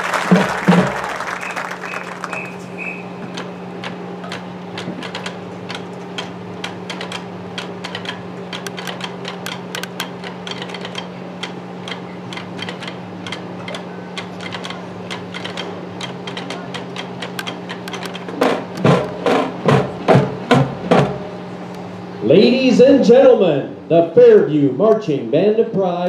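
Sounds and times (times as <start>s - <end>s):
steady low hum: 0.0s - 26.0s
rapid sharp clicks: 1.4s - 19.4s.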